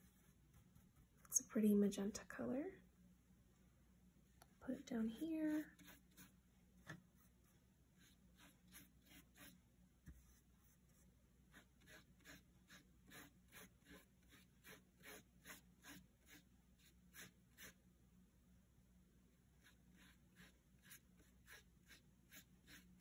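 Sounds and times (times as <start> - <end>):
paintbrush swishing on paper: 0.0 - 1.3, 5.0 - 17.8, 19.6 - 23.0.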